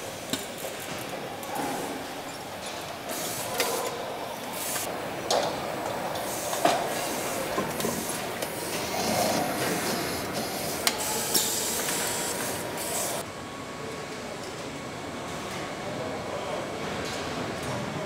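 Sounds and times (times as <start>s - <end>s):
machinery hissing: 3.0s - 13.2s.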